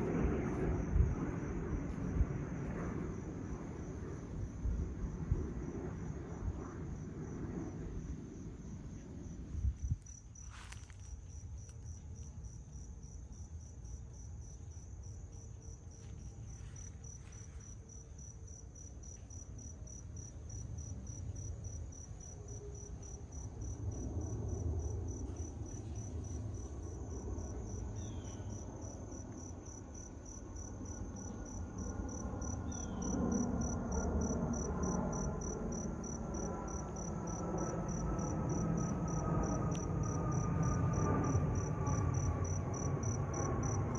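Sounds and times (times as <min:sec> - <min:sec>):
jet engine rumble: 0:00.0 - 0:11.2, 0:23.2 - 0:43.9
crickets chirping: 0:00.0 - 0:43.9.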